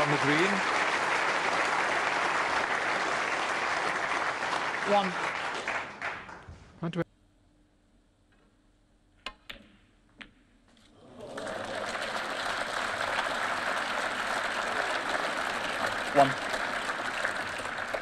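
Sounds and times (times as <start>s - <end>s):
audience applause: 0.0s - 6.5s, 11.0s - 18.0s.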